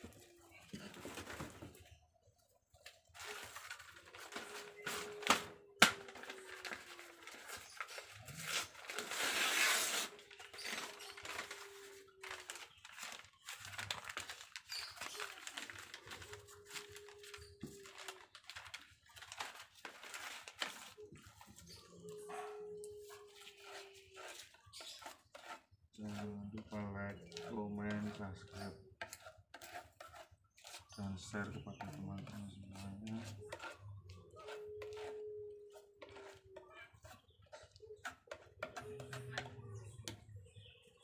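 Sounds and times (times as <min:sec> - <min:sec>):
stiff paper crinkling and tearing: 0:02.8 - 0:22.3, 0:23.2 - 0:39.6.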